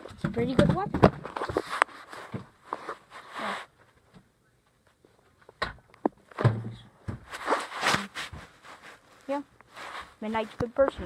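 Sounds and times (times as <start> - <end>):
handling rustle: 7.2 - 11.0.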